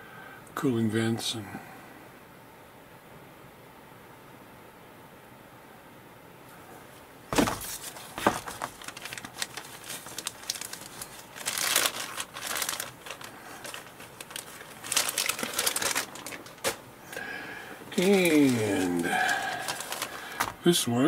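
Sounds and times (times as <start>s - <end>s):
plastic bag crinkling and rustling: 7.3s - 20.7s.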